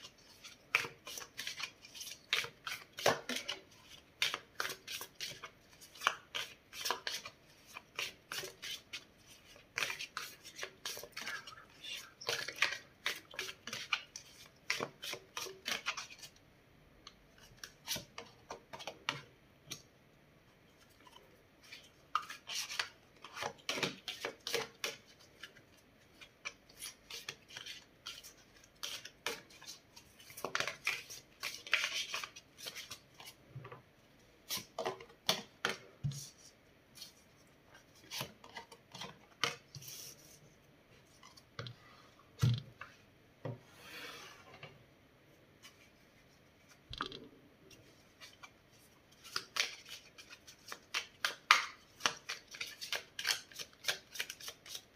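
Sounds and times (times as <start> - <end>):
cards being shuffled: 49.2 - 54.9.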